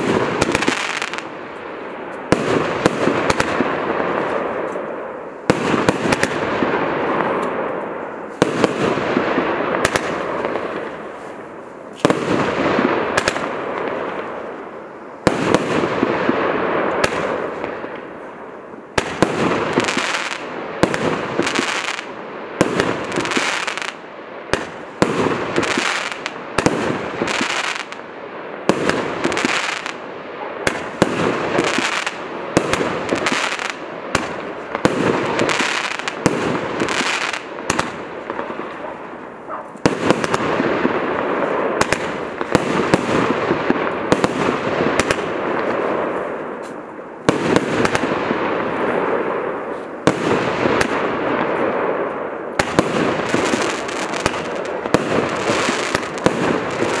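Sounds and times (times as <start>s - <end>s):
crackling firework bursts: 0.0s - 57.0s.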